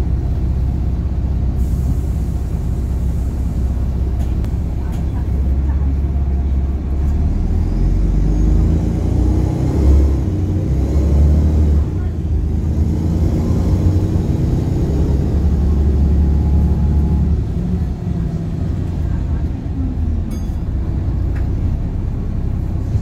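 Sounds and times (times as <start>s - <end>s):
bus diesel engine drone: 0.0s - 23.0s.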